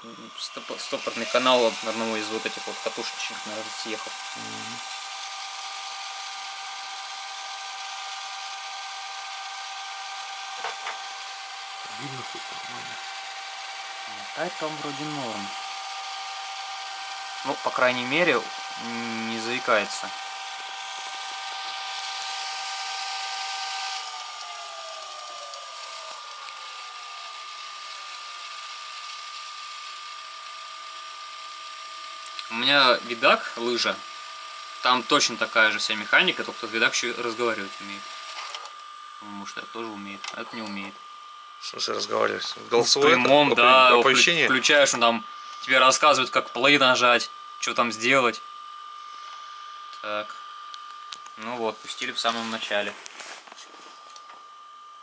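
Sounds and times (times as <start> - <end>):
tape mechanism hiss: 0.0 - 5.6, 49.0 - 54.4
tape transport motor whirring: 0.0 - 54.8.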